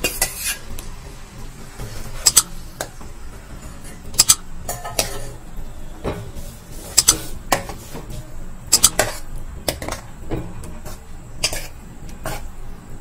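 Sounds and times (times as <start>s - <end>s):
metal spoon scraping a pan: 0.0s - 0.7s, 10.8s - 12.5s.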